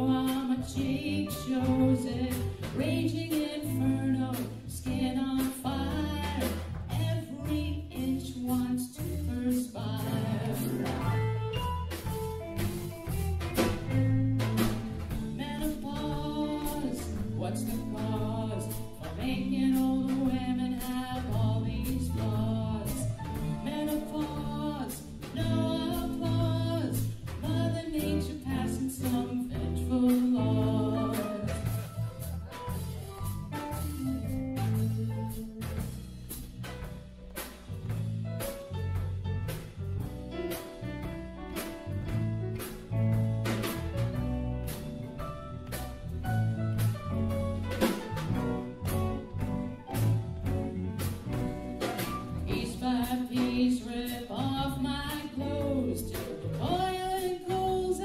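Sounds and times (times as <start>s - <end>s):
woman singing into microphone: 0.0s - 11.1s, 13.9s - 31.7s, 52.5s - 58.0s
live band playing: 0.0s - 58.0s.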